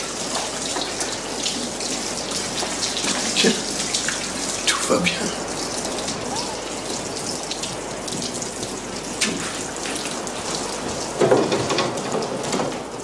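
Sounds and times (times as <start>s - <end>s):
water running and splashing: 0.0s - 13.0s.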